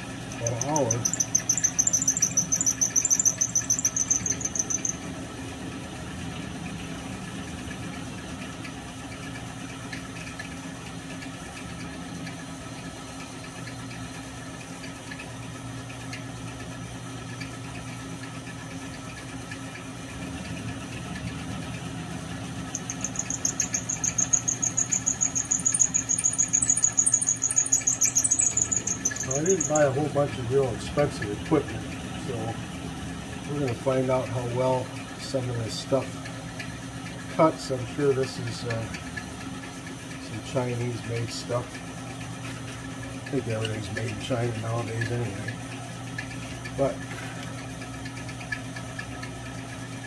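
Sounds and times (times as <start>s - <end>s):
milling machine motor hum: 0.1s - 5.0s, 22.8s - 29.9s
end mill squealing on metal: 0.3s - 5.0s, 22.8s - 29.9s.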